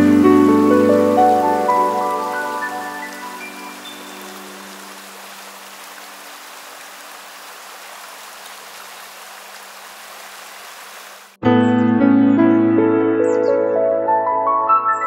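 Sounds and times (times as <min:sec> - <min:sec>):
running water rushing: 0:00.0 - 0:11.4.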